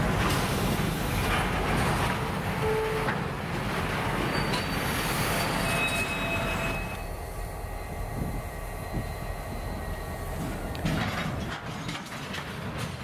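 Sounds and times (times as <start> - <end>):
train wheels rumbling on rails: 0.0 - 13.0
high-pitched wheel squeals: 4.2 - 7.2.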